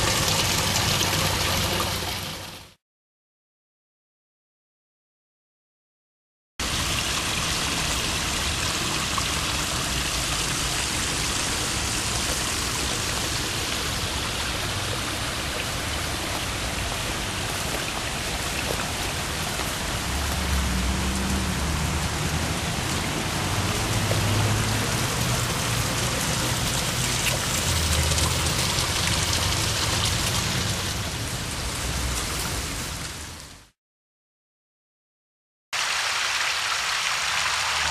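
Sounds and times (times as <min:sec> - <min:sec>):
water trickling over rocks: 0:00.0 - 0:02.6, 0:06.6 - 0:33.2.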